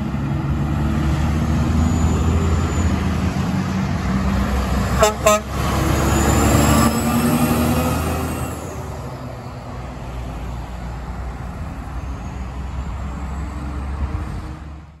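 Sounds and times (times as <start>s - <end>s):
diesel truck engine droning: 0.0s - 15.0s
passing traffic with tyre noise: 0.0s - 15.0s
truck air horn: 4.9s - 5.8s.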